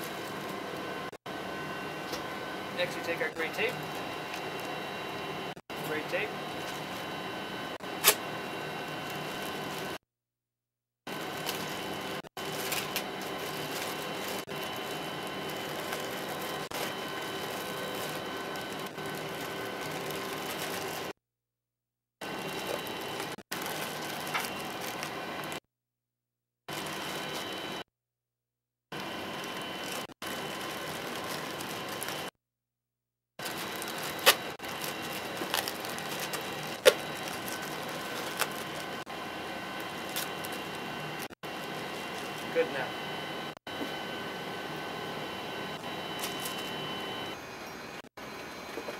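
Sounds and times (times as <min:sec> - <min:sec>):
constant whine tones: 0:00.0 - 0:10.0, 0:11.1 - 0:21.1, 0:33.4 - 0:48.9
ventilation fans humming: 0:00.0 - 0:10.0, 0:11.1 - 0:21.1, 0:22.3 - 0:25.6, 0:29.0 - 0:32.3, 0:33.4 - 0:48.9
duct tape ripping: 0:08.0 - 0:08.2
plastic bag crackling: 0:08.9 - 0:10.0, 0:11.1 - 0:21.1, 0:22.4 - 0:25.5, 0:29.5 - 0:32.3, 0:33.4 - 0:39.0, 0:39.8 - 0:40.8, 0:41.5 - 0:42.6.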